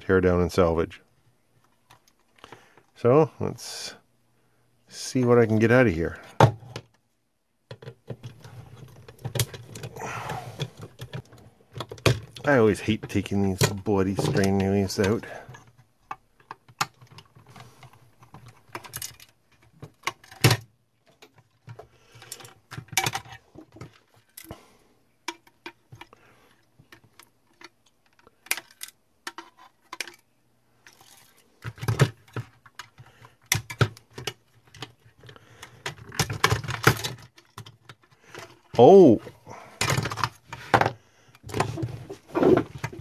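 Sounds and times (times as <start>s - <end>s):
plastic clicks and knocks: 7.7s - 9.9s.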